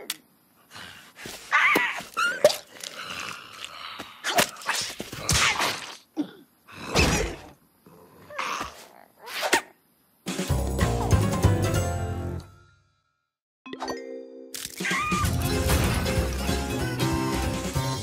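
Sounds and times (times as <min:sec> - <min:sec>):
cartoon character squawks and grunts: 0:01.5 - 0:02.7, 0:14.8 - 0:15.3.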